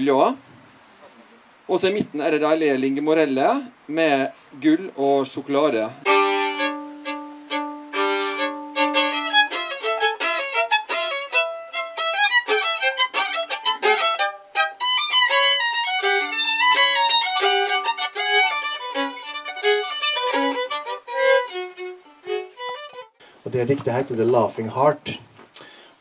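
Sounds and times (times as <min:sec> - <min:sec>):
solo violin playing: 0:06.0 - 0:23.2.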